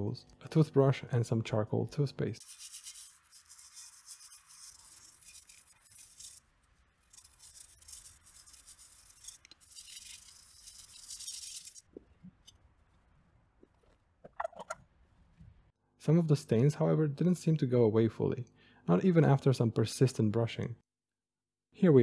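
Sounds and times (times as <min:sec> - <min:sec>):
toothbrush scrubbing metal: 0:02.4 - 0:11.9.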